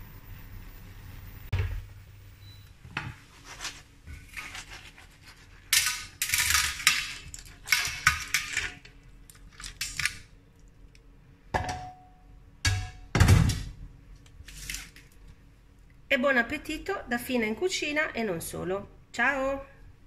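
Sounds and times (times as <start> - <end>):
clam shells rattling on metal platter: 5.7 - 10.2.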